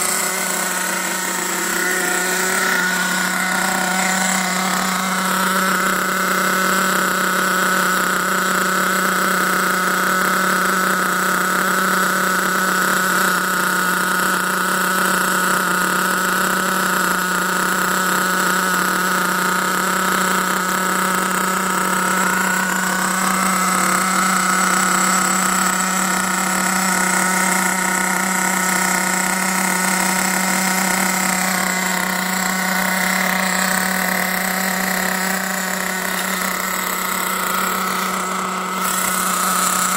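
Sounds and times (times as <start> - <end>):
small nitro engine idling: 0.0 - 39.9.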